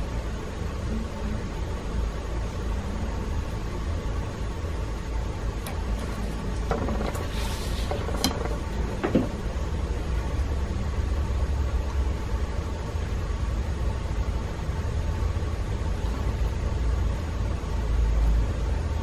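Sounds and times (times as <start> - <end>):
low background rumble: 0.0 - 19.0
board scraping rustle: 6.1 - 9.2.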